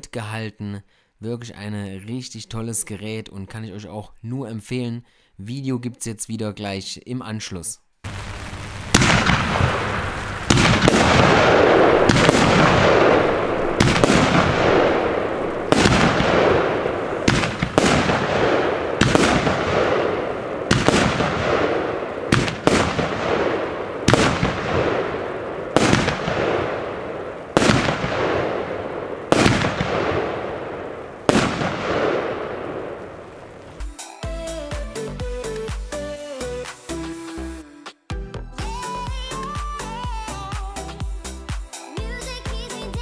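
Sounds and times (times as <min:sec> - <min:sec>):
fireworks bangs: 0:08.0 - 0:33.9.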